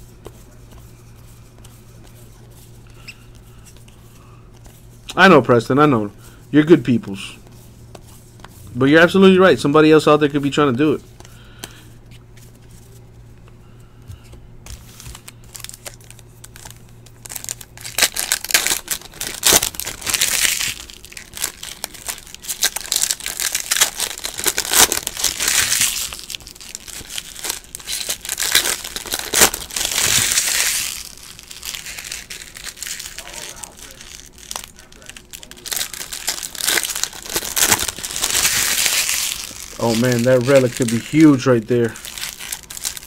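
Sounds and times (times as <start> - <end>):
foil wrapper tearing and crinkling: 14.8 - 43.0.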